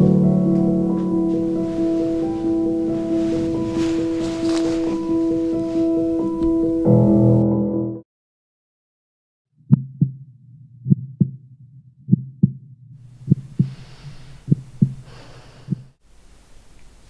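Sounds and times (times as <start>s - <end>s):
low hum: 9.6s - 16.0s
slow heartbeat: 9.6s - 16.0s
soft breath-like hisses: 13.6s - 16.6s.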